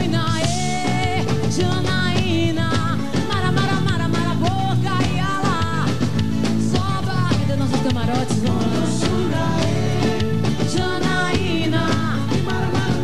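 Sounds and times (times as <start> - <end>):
band with driving beat: 0.0 - 13.0
woman singing lead vocal: 0.0 - 13.0.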